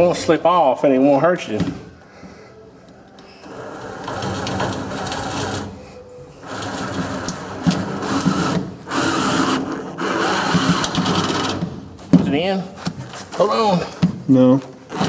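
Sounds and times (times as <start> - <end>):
cordless drill driving screw: 6.4 - 11.6.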